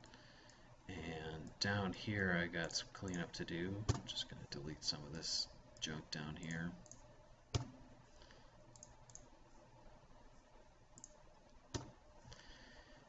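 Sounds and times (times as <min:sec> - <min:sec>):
computer mouse clicking: 0:06.8 - 0:07.8, 0:08.7 - 0:09.4, 0:11.0 - 0:12.0.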